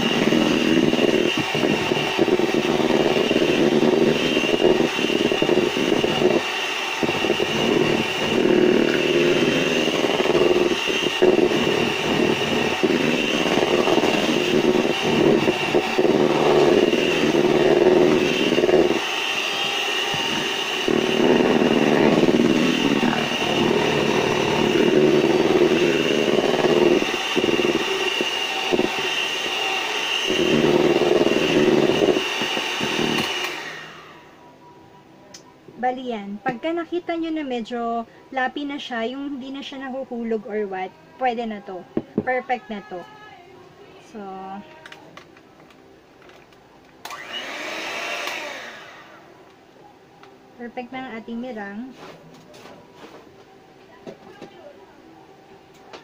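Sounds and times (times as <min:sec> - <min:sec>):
electric hand mixer whine: 0:00.0 - 0:34.4, 0:47.0 - 0:49.4.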